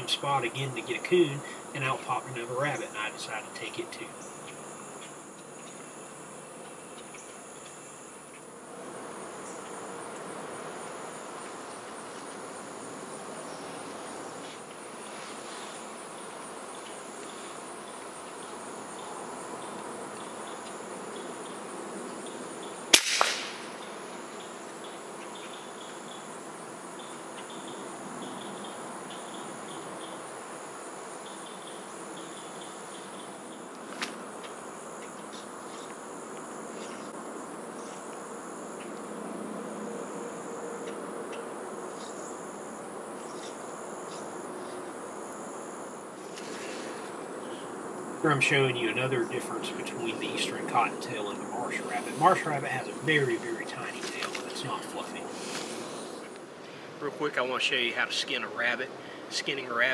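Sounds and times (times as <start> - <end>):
insects chirring: 0.0 - 59.9
air rifle firing: 22.9 - 23.8.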